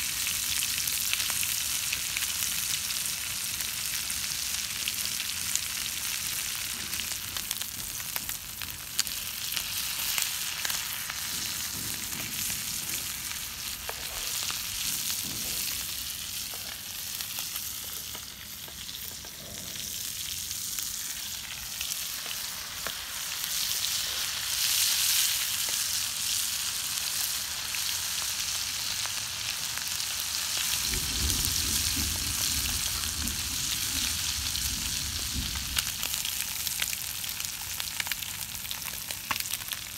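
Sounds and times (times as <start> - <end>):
fish sizzling in hot oil: 0.0 - 39.9.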